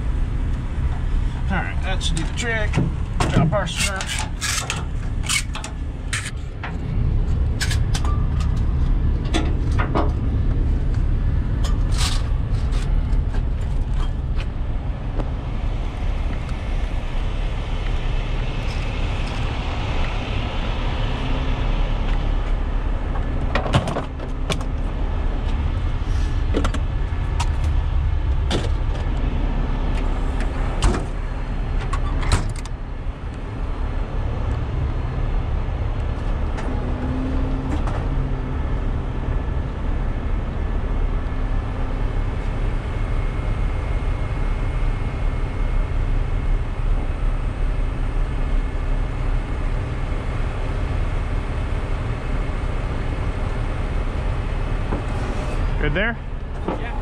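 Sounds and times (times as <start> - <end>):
straps and rigging clattering: 2.0 - 6.5.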